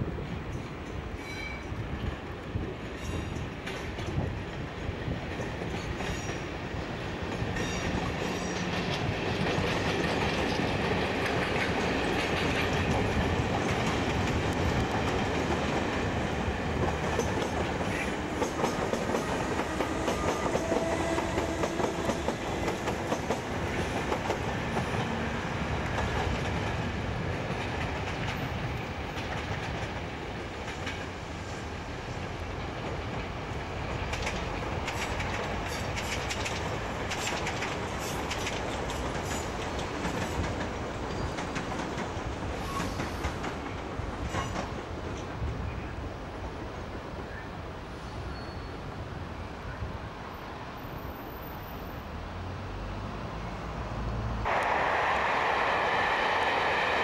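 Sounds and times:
electric train running past: 0:00.0 - 0:57.0
wheels clattering over rail joints: 0:34.0 - 0:45.3.

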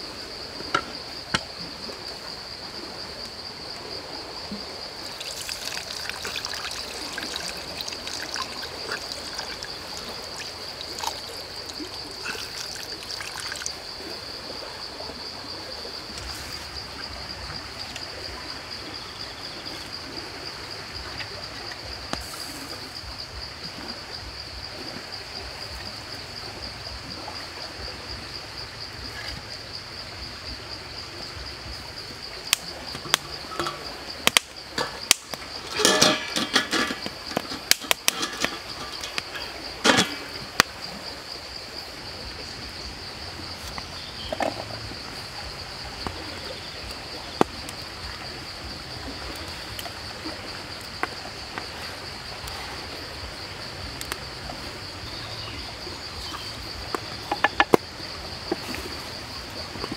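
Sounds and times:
liquid pouring and splashing: 0:05.0 - 0:13.8, 0:34.8 - 0:40.6
handling knocks and rustles: 0:34.7 - 0:40.4.

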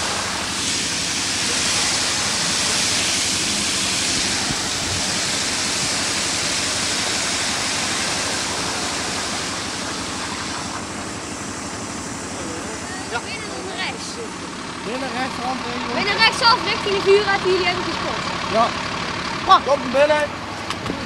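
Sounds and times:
water jetting onto paving: 0:00.0 - 0:15.0.

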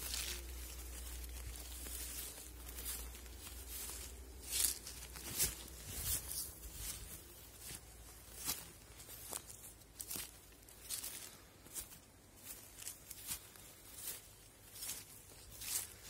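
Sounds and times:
footsteps through dry grass: 0:00.0 - 0:16.0.

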